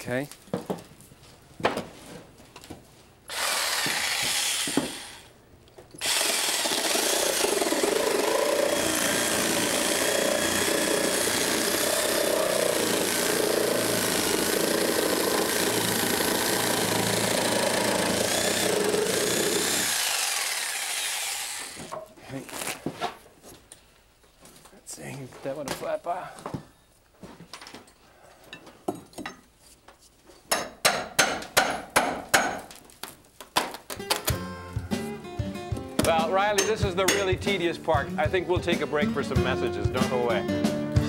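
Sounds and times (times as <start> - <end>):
reciprocating saw cutting wood: 3.3 - 5.3, 6.0 - 21.9.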